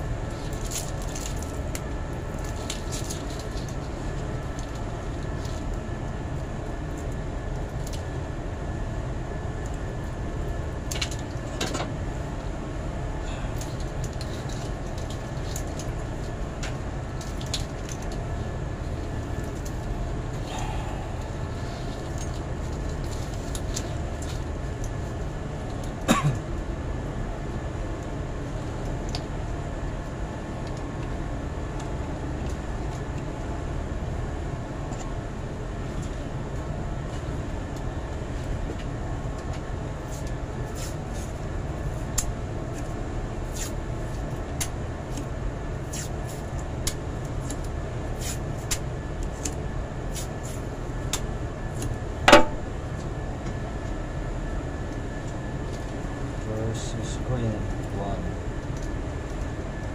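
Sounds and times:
low mechanical rumble: 0:00.0 - 0:59.9.

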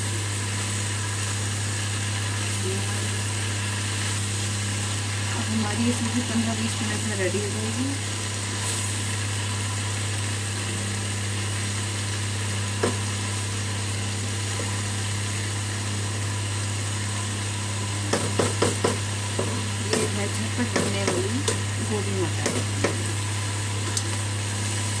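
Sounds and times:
food sizzling: 0:00.0 - 0:25.0
spatula stirring vegetables: 0:18.0 - 0:24.8
spatula knocking on pan: 0:18.1 - 0:21.6, 0:22.4 - 0:23.1.

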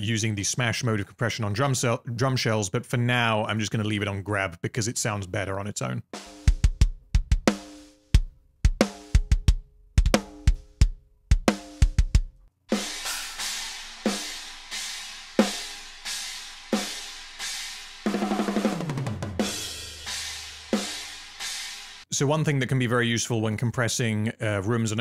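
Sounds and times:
fast drum fill: 0:06.2 - 0:22.1
cymbal wash: 0:12.7 - 0:18.1.

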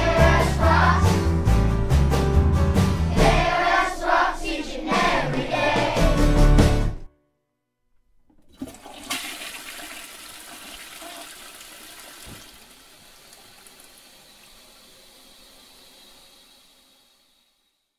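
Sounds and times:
band music: 0:00.0 - 0:07.1
toilet flushing: 0:08.3 - 0:17.8.

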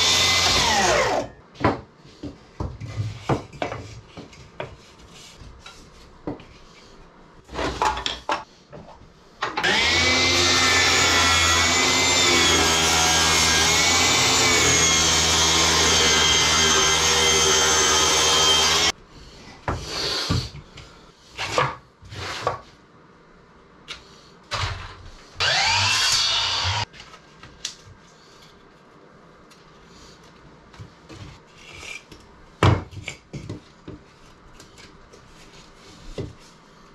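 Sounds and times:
power tool running on wood: 0:00.0 - 0:01.2, 0:09.6 - 0:18.9, 0:25.4 - 0:26.8.

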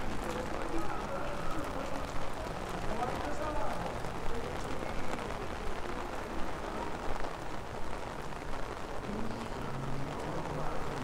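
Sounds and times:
steady rain on a wet street: 0:00.0 - 0:11.0.

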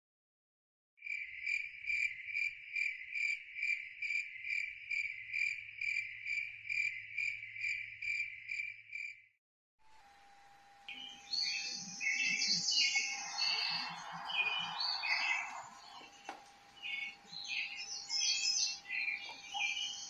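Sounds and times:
high insect-like trill: 0:10.9 - 0:20.0.

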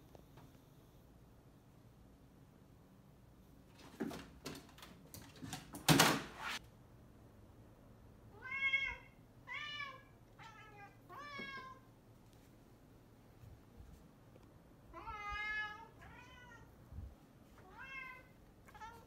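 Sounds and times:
cat meowing: 0:08.3 - 0:11.9, 0:14.9 - 0:16.7, 0:17.6 - 0:19.0.

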